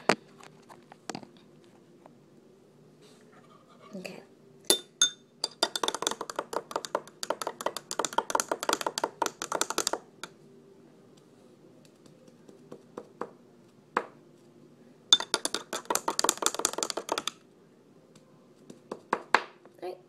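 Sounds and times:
spoon clinking in glass: 4.7s - 6.2s, 15.1s - 15.7s
spoon tapping glass: 4.7s - 10.0s, 15.1s - 17.4s.

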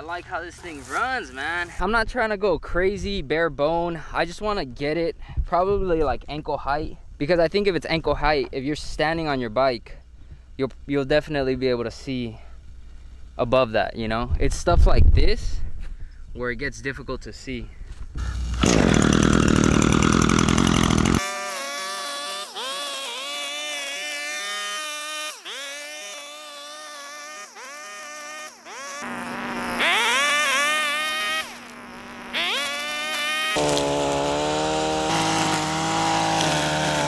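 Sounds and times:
string trimmer cutting brush: 0.1s - 1.8s, 18.2s - 37.0s.

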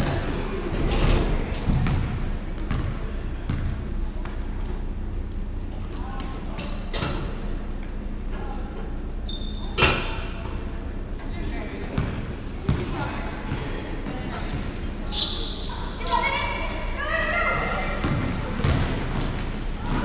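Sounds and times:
sneakers squeaking: 0.0s - 10.8s, 11.4s - 20.0s
basketball bouncing on wooden floor: 1.7s - 2.9s, 3.5s - 3.7s
players' voices: 10.2s - 20.0s.

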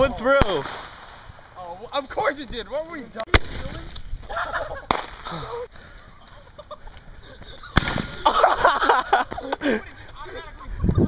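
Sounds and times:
firework bang: 0.4s - 1.6s, 3.3s - 4.0s, 4.9s - 5.4s, 7.8s - 8.4s.

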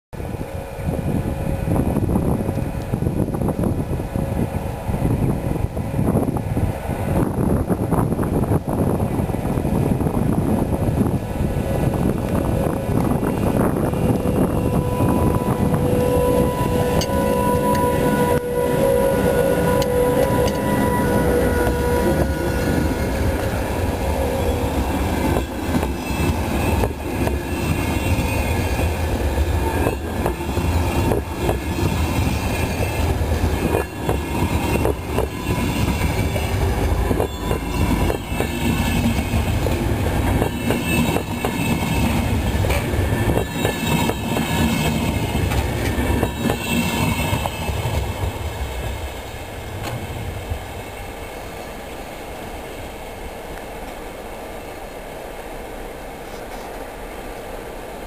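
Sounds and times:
train coaches rumbling past: 0.2s - 58.0s
wheels clacking over rail joints: 19.7s - 50.5s.

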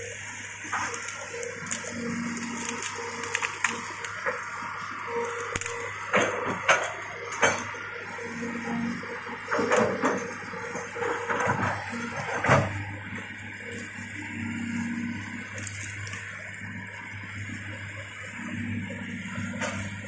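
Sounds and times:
excavator diesel engine running: 0.0s - 20.0s
branches cracking and breaking: 0.6s - 8.2s, 13.6s - 16.8s.

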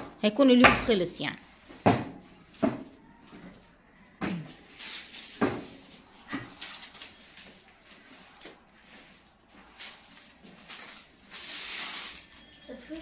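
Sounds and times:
broom knocking on floor: 1.8s - 3.0s, 5.3s - 6.4s.

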